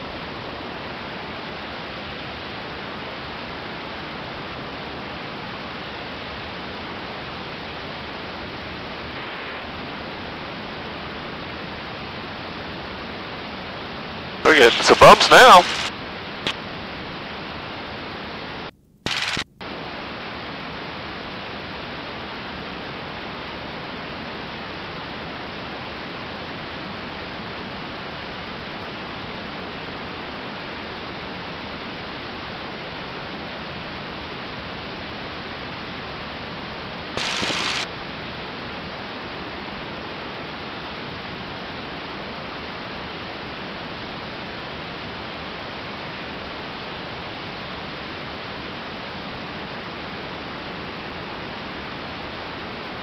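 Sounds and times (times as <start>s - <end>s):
airplane cockpit engine rush: 14.4s - 15.9s, 37.2s - 37.9s.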